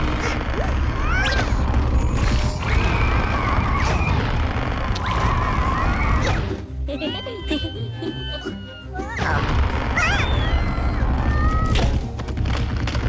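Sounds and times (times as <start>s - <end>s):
high squeaky cartoon cries: 6.9s - 9.4s, 10.0s - 11.8s.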